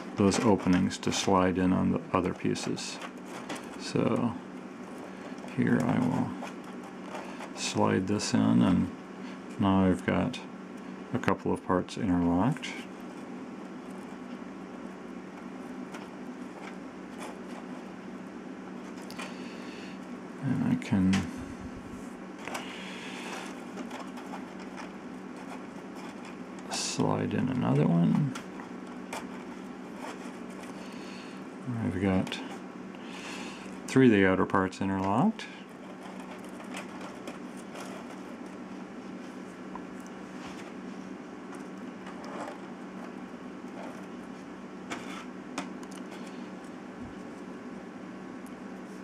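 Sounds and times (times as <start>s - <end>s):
steady low hum: 0.0s - 49.0s
scratchy rustle: 22.4s - 26.8s, 28.3s - 31.1s, 35.7s - 39.4s, 41.5s - 45.4s.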